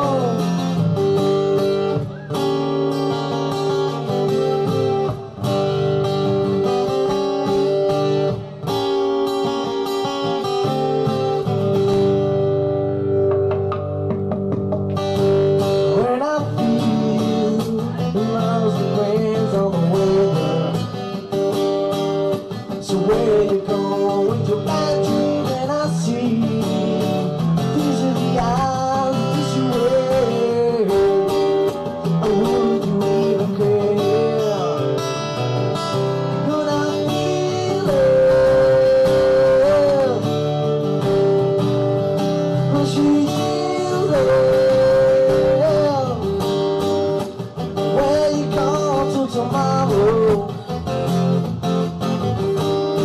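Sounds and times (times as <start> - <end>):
man singing: 0.0 - 2.0, 15.7 - 21.4, 22.5 - 40.7, 42.5 - 46.5, 47.2 - 51.5
strummed acoustic guitar: 0.0 - 53.0.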